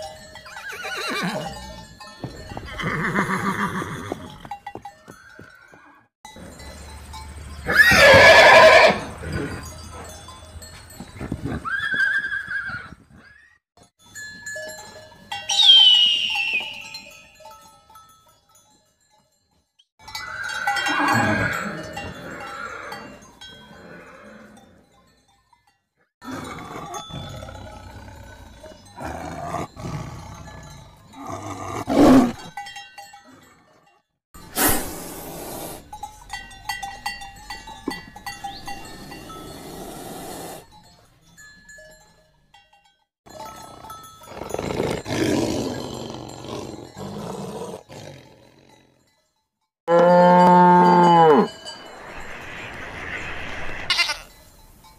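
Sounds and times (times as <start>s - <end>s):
horse whinnies: 0.6s - 1.6s, 2.7s - 4.4s, 7.6s - 9.6s, 11.5s - 13.6s, 15.6s - 17.0s, 20.2s - 23.1s, 53.8s - 54.4s.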